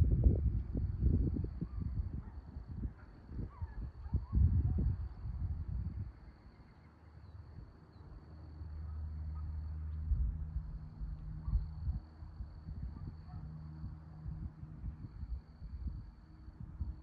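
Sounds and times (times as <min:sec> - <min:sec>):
wind buffeting microphone: 0:00.0 - 0:06.5, 0:10.0 - 0:17.0
distant propeller plane engine drone: 0:00.0 - 0:17.0.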